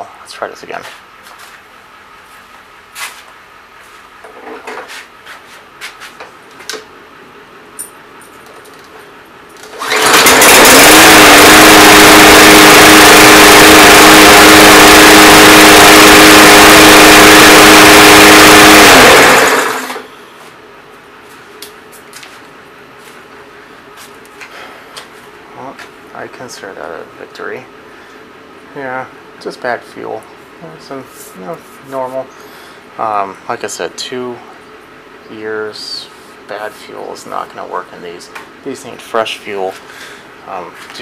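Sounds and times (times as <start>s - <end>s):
lawn mower engine running: 9.6s - 20.1s.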